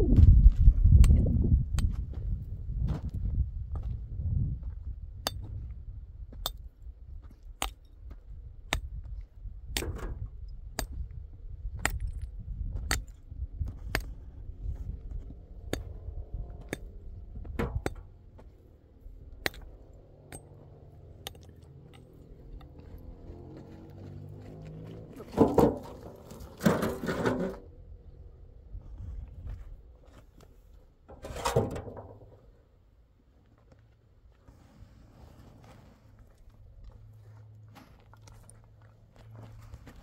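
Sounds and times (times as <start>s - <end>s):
low rumble: 0.0s - 6.4s, 8.3s - 25.4s
metal wheelbarrow clinking and rattling: 25.2s - 27.7s, 31.1s - 32.4s.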